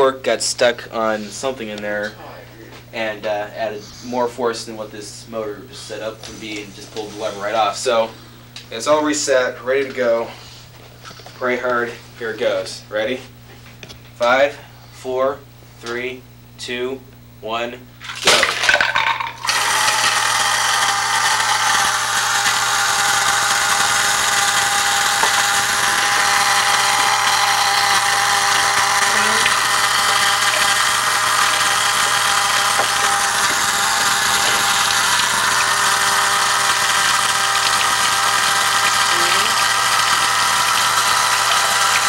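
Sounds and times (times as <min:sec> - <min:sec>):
small electric motor whine: 0:18.7 - 0:42.0.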